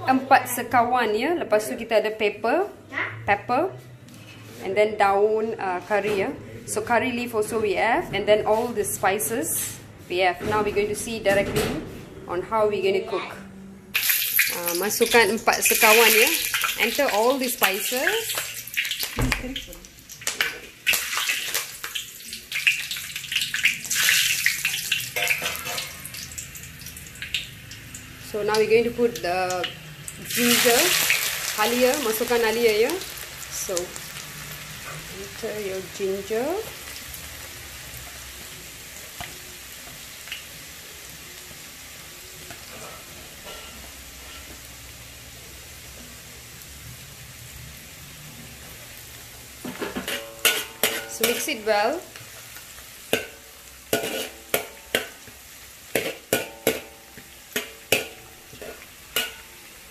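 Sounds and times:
hot oil sizzling in a wok: 13.9s - 59.9s.

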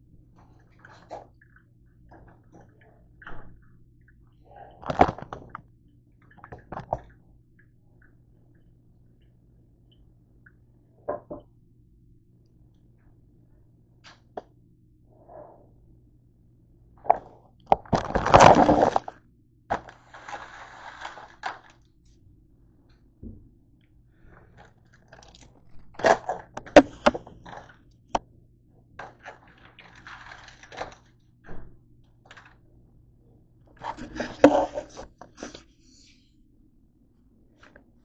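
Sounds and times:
plastic wrapper crinkling: 17.8s - 21.8s, 29.2s - 31.1s.

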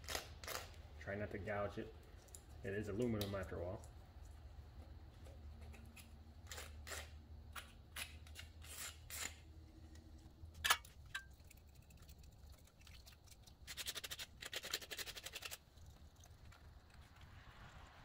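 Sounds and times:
razor blade scraping metal: 5.9s - 9.4s.

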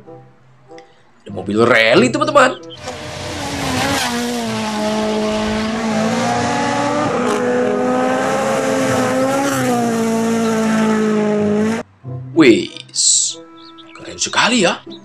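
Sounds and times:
car engine at high revs: 2.8s - 11.8s.

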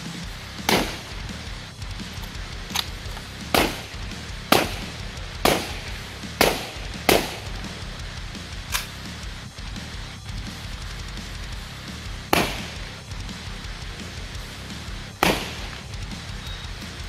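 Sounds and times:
heavy metal music: 0.0s - 17.0s
gunshots: 0.5s - 7.9s, 12.2s - 13.4s, 15.1s - 16.3s.

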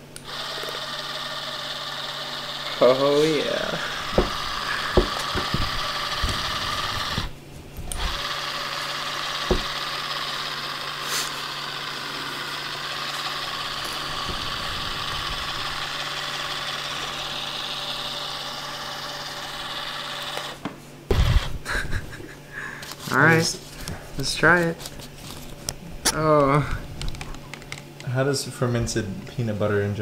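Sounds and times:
small electric motor running: 0.0s - 21.9s.

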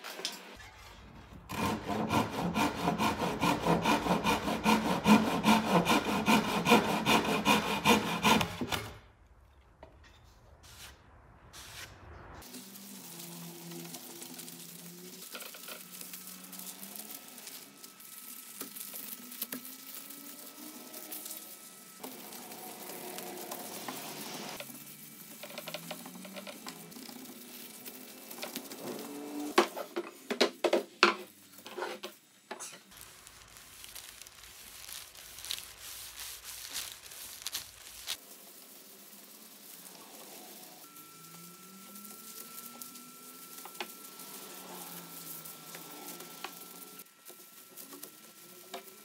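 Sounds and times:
cloth rubbing on wood: 33.1s - 40.5s.

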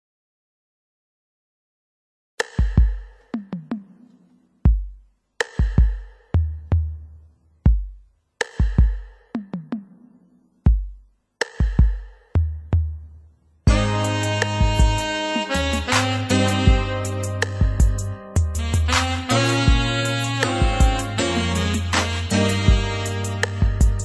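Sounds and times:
electronic bass drum hits: 13.7s - 15.1s, 16.6s - 19.0s.

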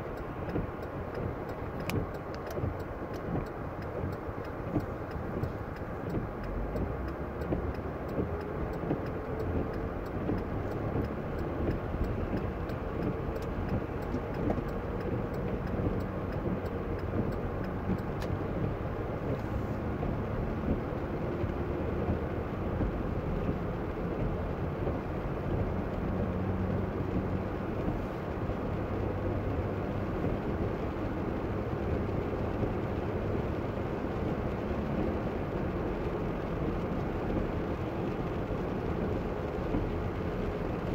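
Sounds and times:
faint regular ticking: 0.0s - 29.5s
tyres hissing on wet road: 0.0s - 40.9s.

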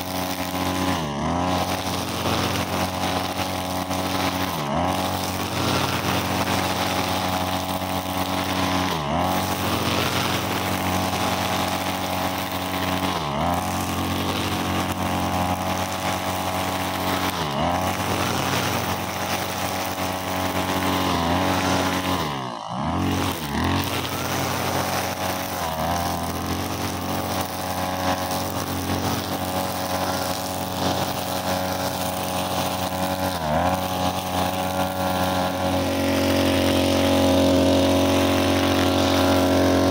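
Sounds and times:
brushcutter engine running: 0.0s - 39.9s
trimmer line cutting grass: 0.0s - 39.9s.

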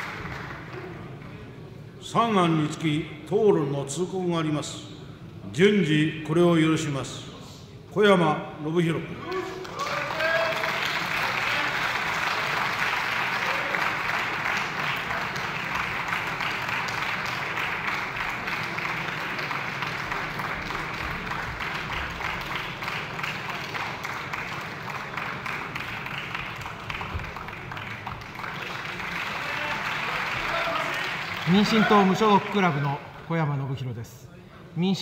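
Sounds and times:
crowd applauding: 0.0s - 1.2s, 9.3s - 33.3s.

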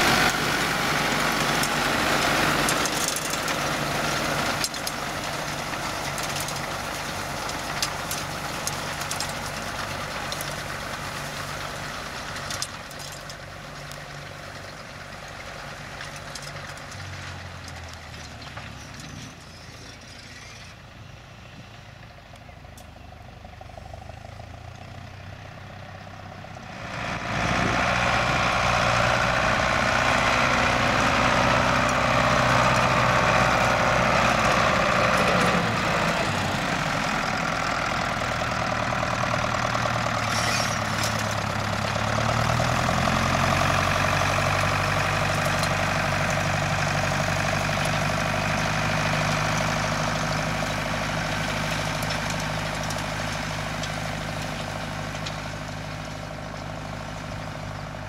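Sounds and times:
hay rake working: 0.0s - 20.8s, 26.5s - 58.0s
tractor diesel engine running: 0.0s - 58.0s.

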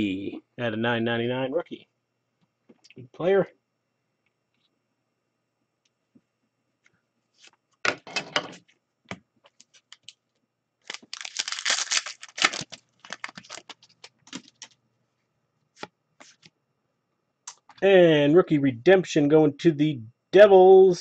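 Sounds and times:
card packs crinkling: 10.8s - 14.8s
cards clicking and rustling: 10.9s - 14.8s.

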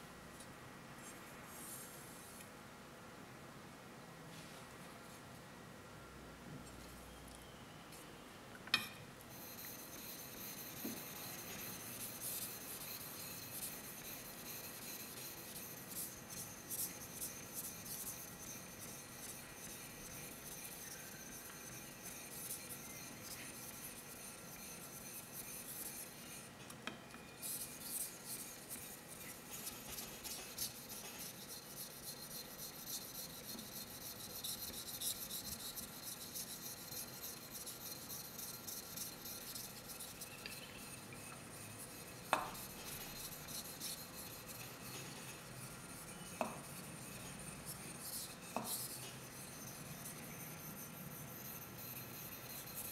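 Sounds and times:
knife scraping on whetstone: 9.3s - 26.5s, 27.4s - 52.9s
blade tapping stone: 42.3s - 42.6s.

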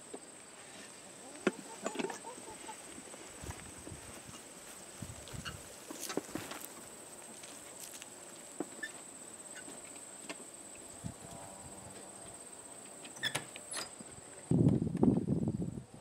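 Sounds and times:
wagon clicking and rattling over grass: 1.3s - 9.0s
wooden barn door scraping open: 13.1s - 14.0s.

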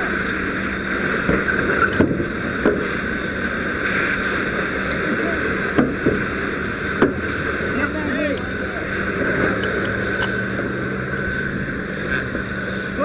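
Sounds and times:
low hum: 0.0s - 13.0s
water rushing from fire hose: 0.0s - 13.0s
sharp knocks: 5.7s - 6.3s.

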